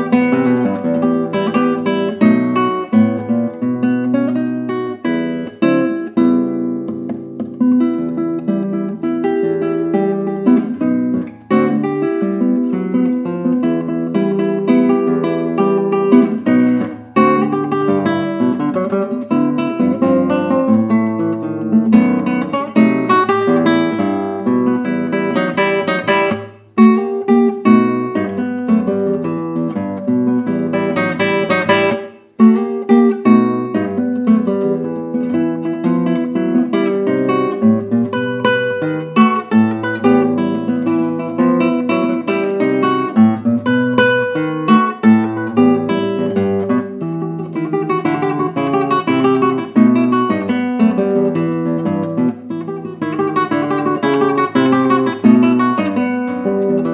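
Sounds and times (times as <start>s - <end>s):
acoustic guitar plucking: 0.0s - 56.9s.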